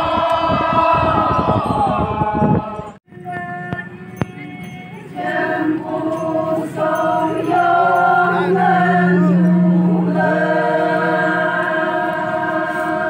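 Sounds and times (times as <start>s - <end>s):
women chanting together: 5.2s - 13.0s.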